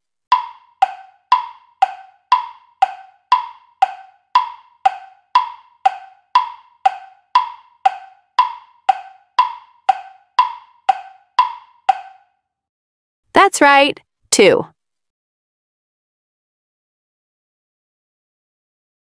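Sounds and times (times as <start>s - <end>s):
wooden tick-tock timer: 0.3s - 12.3s.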